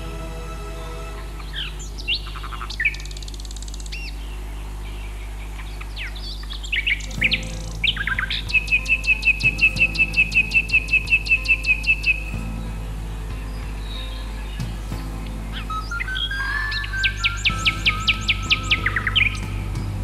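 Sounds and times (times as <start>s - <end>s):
birds chirping and whistling: 0.0s - 20.0s
steady low hum: 0.0s - 20.0s
rapid high bird calls: 1.2s - 20.0s.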